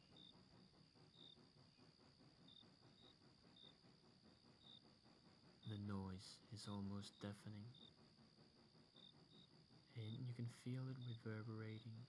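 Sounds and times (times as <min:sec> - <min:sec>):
crickets trilling: 0:00.0 - 0:12.0
soft low murmur: 0:09.8 - 0:12.0.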